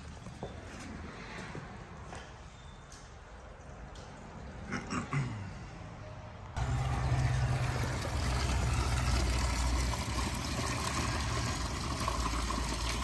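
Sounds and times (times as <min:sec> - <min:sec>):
water gushing from drain pipe: 0:06.6 - 0:13.0
water splashing on wet ground: 0:06.6 - 0:13.0.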